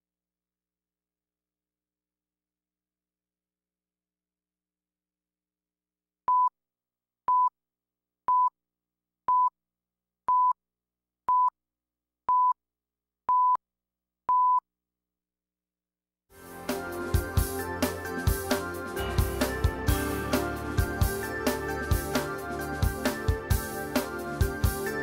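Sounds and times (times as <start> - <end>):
music: 16.3 - 25.0.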